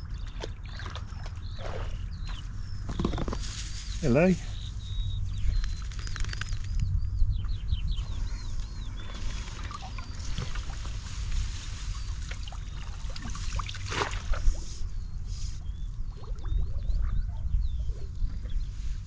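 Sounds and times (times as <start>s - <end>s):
bird chirps: 0.0s - 10.9s
wind rumble on microphone: 0.0s - 19.0s
pole splashing in river water: 12.3s - 14.6s.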